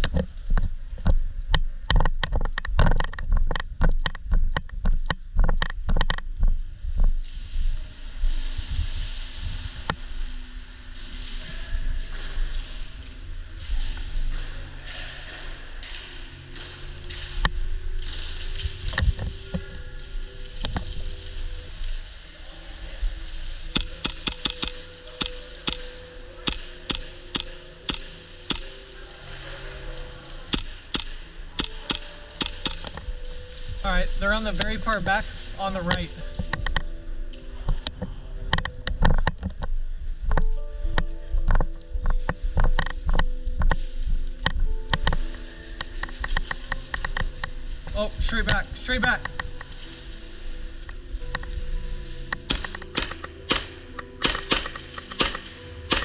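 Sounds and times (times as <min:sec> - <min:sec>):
airsoft gun shots: 0:52.5 - 0:56.0.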